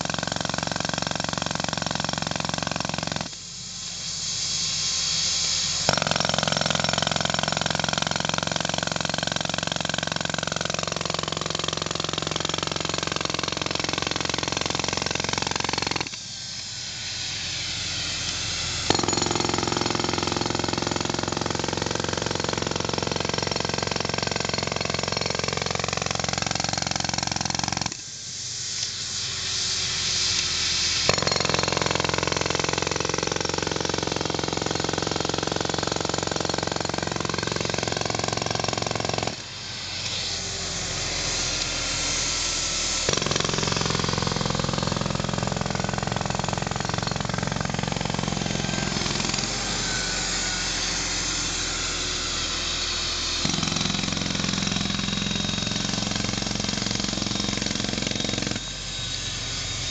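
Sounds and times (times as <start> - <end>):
jackhammer breaking asphalt: 0.0 - 3.4, 5.8 - 16.2, 18.8 - 28.0, 31.0 - 39.4, 43.0 - 51.7, 53.4 - 58.6
air compressor droning: 0.0 - 59.9.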